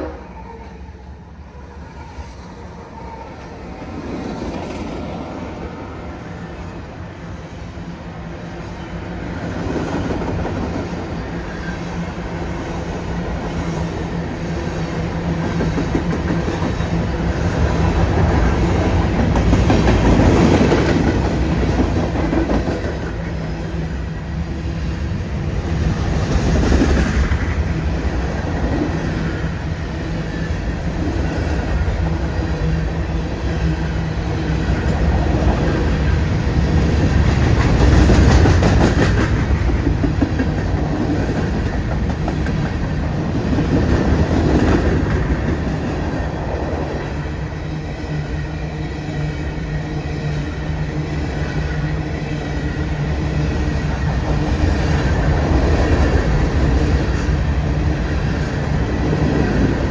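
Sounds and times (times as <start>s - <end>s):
freight train wheels clacking: 9.0s - 24.1s, 24.8s - 48.3s.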